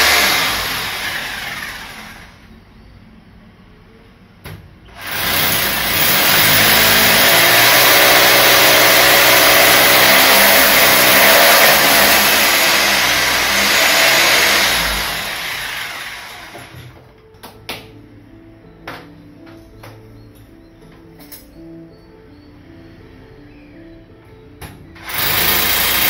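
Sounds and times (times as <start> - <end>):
power drill boring into tile: 0.0 - 2.3, 5.0 - 16.9, 25.0 - 26.0.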